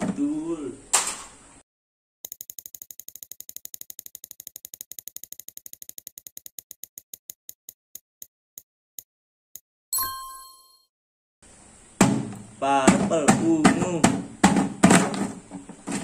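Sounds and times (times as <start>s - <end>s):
prize wheel ticking: 2.3s - 7.3s.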